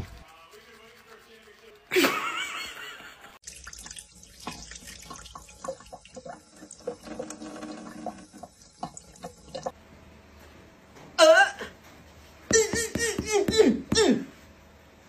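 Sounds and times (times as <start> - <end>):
cat licking and drinking water: 3.4 - 9.7.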